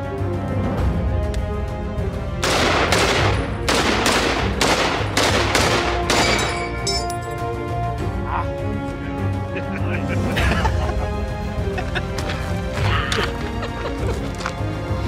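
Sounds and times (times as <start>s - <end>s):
background music: 0.0s - 15.0s
rifle shots: 2.4s - 6.6s.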